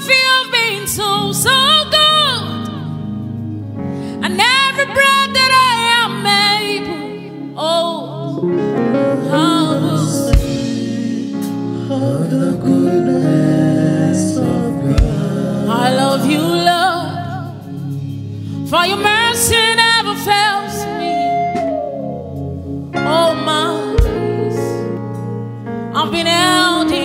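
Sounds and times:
woman singing into a microphone: 0.0s - 3.0s, 4.0s - 11.3s, 14.0s - 17.9s, 18.6s - 22.1s, 23.0s - 25.0s, 25.9s - 27.0s
held chordal accompaniment: 0.6s - 27.0s
low thumps: 14.8s - 15.4s.

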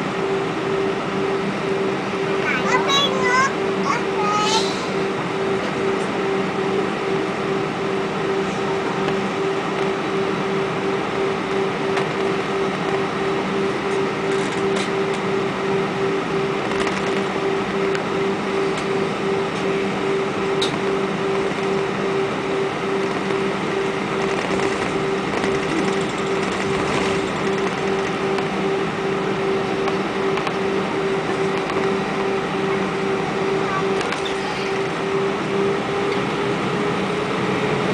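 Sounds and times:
aircraft cabin engine drone: 0.0s - 37.9s.

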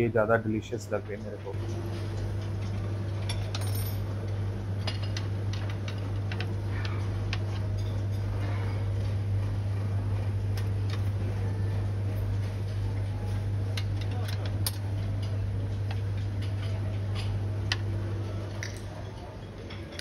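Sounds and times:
steady low hum: 0.0s - 20.0s
plates and cutlery clinking: 18.2s - 20.0s.

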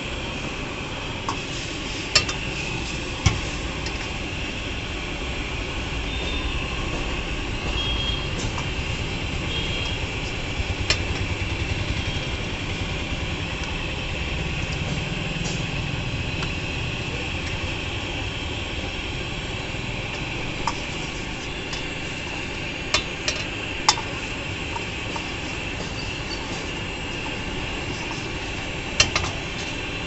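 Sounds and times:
rumble and hiss: 0.0s - 30.0s
ladle stirring in wok: 19.6s - 30.0s.

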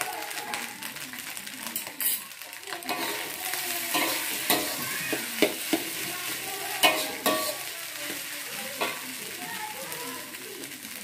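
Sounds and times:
frying sizzle: 0.0s - 11.0s
spatula scraping metal wok: 2.8s - 9.1s
spatula clanking against pan: 3.9s - 6.0s, 6.8s - 7.7s.

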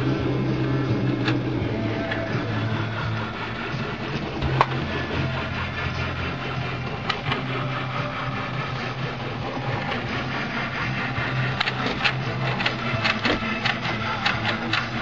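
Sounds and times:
stepper motors humming: 0.0s - 15.0s
sharp mechanical clicks: 11.6s - 15.0s.

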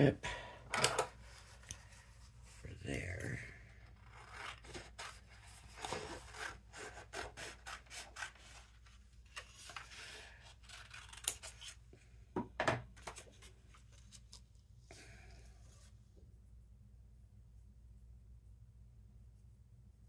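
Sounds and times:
cardstock rustling and rubbing: 1.0s - 11.8s, 13.0s - 14.7s.

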